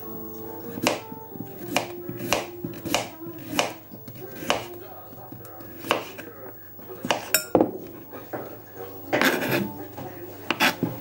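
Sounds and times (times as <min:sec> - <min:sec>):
knife chopping on cutting board: 0:00.7 - 0:06.3, 0:07.0 - 0:07.9, 0:09.2 - 0:09.7, 0:10.5 - 0:11.0.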